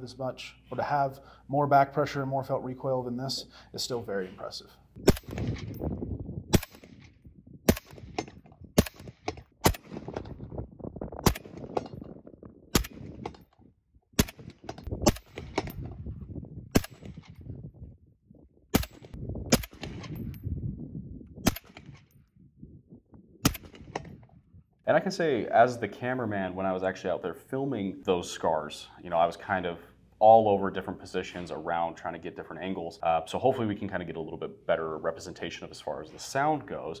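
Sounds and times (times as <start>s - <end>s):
suppressed rifle shots: 5.0s - 5.8s, 6.5s - 10.4s, 11.2s - 12.1s, 12.7s - 13.4s, 14.2s - 15.8s, 16.7s - 17.4s, 18.7s - 20.3s, 21.4s - 22.1s, 23.4s - 24.2s.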